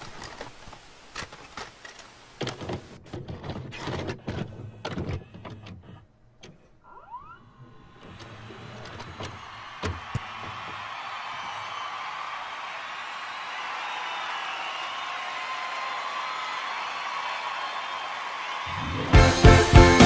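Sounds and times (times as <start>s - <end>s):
tape mechanism clicks and clunks: 0.0s - 10.8s
motor whirring: 4.2s - 9.6s.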